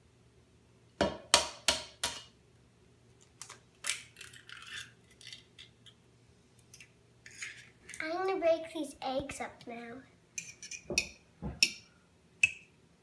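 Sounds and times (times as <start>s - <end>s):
egg knocking against bowl: 1.0s - 2.2s, 10.8s - 11.8s
eggshell crackling: 3.2s - 6.0s.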